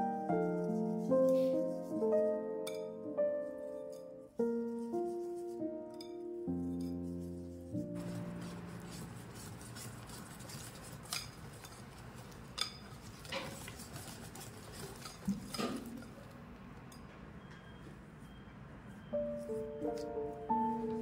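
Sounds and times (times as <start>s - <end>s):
whisk stirring batter: 4.4s - 16.2s
wire whisk clinking on glass: 12.5s - 13.0s.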